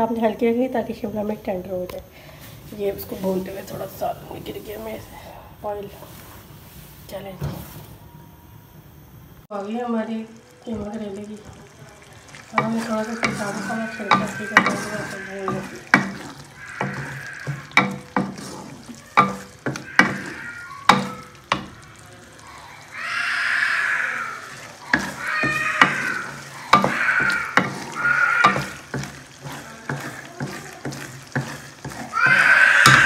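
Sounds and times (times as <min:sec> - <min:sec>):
food sizzling: 0:00.0 - 0:33.0
spoon scraping pot: 0:12.2 - 0:21.8, 0:24.4 - 0:33.0
wooden spoon knocking metal pot: 0:12.4 - 0:21.8, 0:24.6 - 0:33.0.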